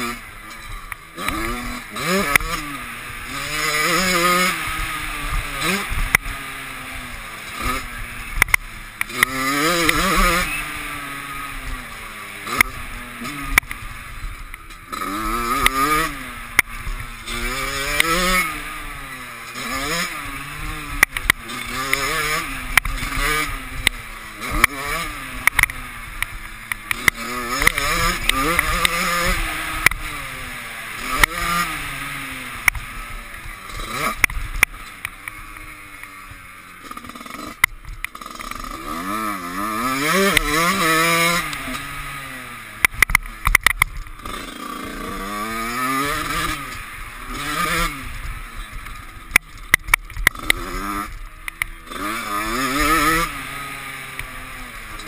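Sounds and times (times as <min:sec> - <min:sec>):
dirt bike engine revving: 0:00.0 - 0:55.0
sharp knocks over rough ground: 0:42.8 - 0:53.4.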